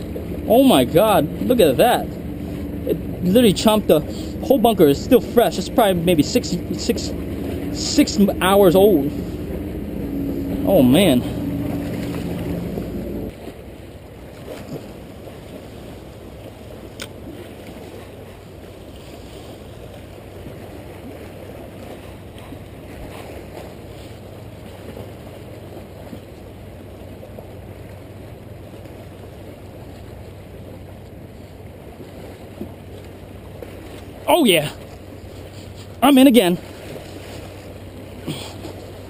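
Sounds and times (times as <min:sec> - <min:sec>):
waves splashing against rocks: 0:00.0 - 0:39.0.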